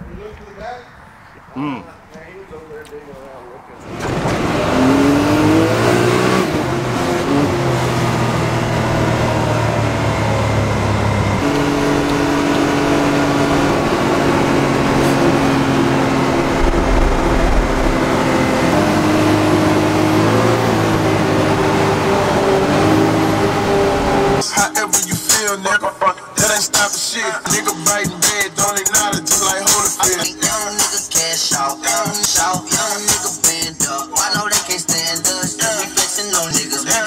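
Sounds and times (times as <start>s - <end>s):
vehicle engine droning: 3.0s - 24.4s.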